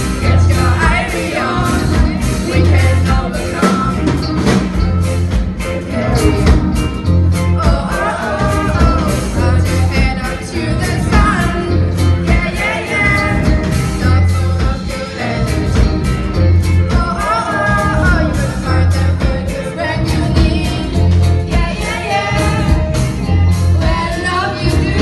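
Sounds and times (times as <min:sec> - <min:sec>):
live band with drums and bass: 0:00.0 - 0:25.0
women singing together: 0:00.2 - 0:03.9, 0:07.6 - 0:15.7, 0:17.0 - 0:25.0.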